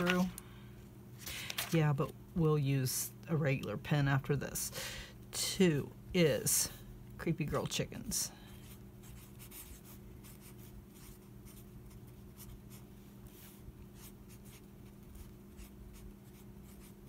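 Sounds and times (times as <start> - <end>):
steady low hum: 0.0 - 17.0
marker scratching on paper: 8.6 - 17.0.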